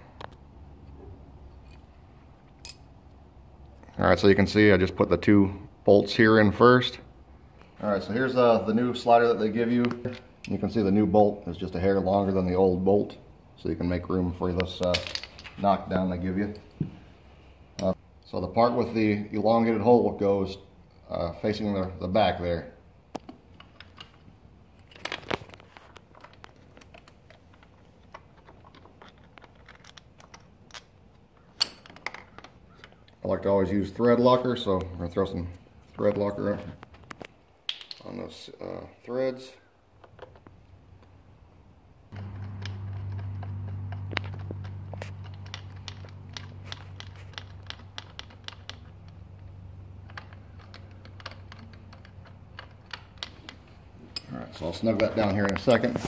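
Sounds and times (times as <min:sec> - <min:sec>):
metal parts clicking and tapping: 0:23.1 - 0:33.2, 0:42.1 - 0:56.0
metallic clicks of bolts: 0:26.1 - 0:33.2, 0:45.2 - 0:49.2.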